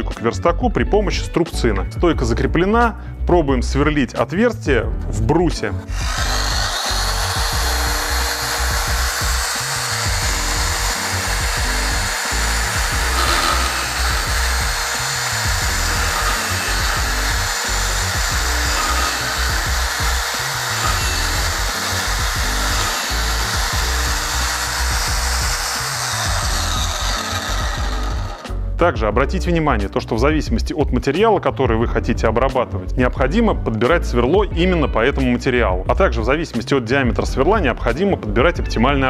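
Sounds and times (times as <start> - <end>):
background music: 0.0 - 39.0
drill boring into wood: 5.8 - 28.8.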